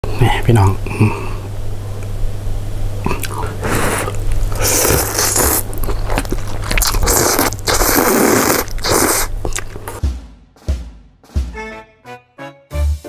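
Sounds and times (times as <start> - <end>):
person slurping noodles: 3.1 - 10.0.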